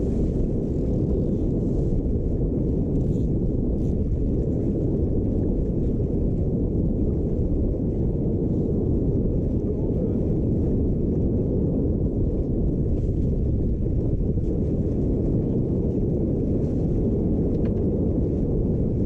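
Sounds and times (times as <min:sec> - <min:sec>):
wind rumble on microphone: 0:00.0 - 0:19.0.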